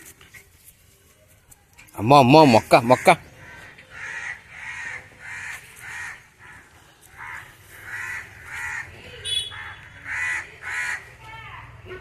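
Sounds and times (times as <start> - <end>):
crows cawing: 2.6 - 11.2.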